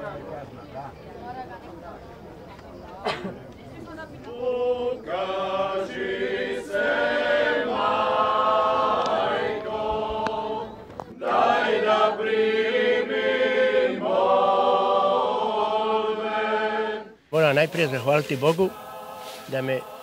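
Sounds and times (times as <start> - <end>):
choir singing held chords: 4.2 - 20.0.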